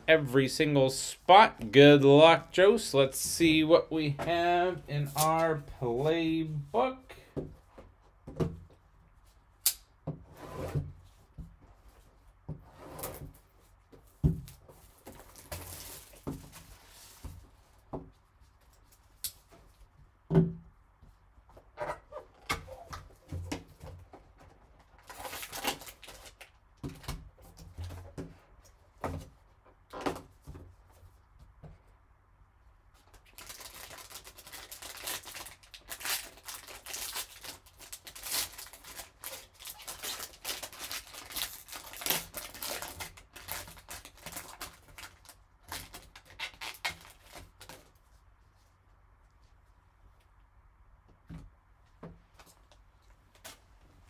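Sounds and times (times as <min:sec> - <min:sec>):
plastic wrap crinkling and tearing: 0:14.5 - 0:17.2, 0:24.9 - 0:26.6, 0:33.1 - 0:47.9.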